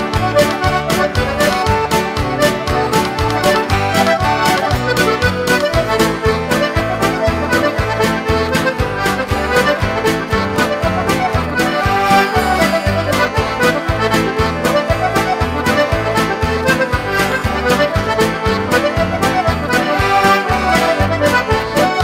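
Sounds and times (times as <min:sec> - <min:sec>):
button accordion playing a tune: 0:00.0 - 0:22.0
steady beat: 0:00.0 - 0:22.0.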